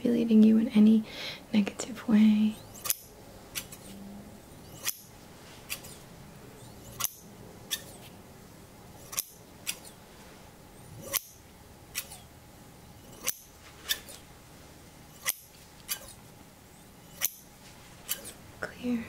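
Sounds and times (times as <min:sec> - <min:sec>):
metal shears snipping: 0:02.6 - 0:04.0, 0:04.6 - 0:08.2, 0:08.9 - 0:10.0, 0:10.9 - 0:12.3, 0:13.0 - 0:14.2, 0:15.1 - 0:18.4.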